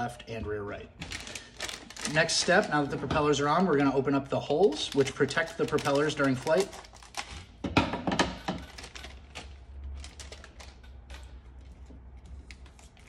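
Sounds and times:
plastic packaging rustling: 1.0 - 13.0
plastic parts clicking and clattering: 4.8 - 11.4.

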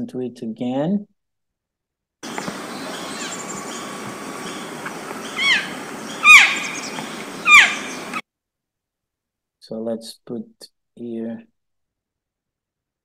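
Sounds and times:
elk calf calling: 2.2 - 8.2
steady hiss: 2.2 - 8.2.

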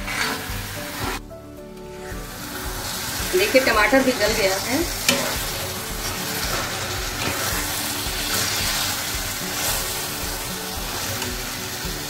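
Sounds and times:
steel spatula stirring: 0.0 - 1.2, 1.9 - 12.0
food sizzling in a frying pan: 0.0 - 12.0.

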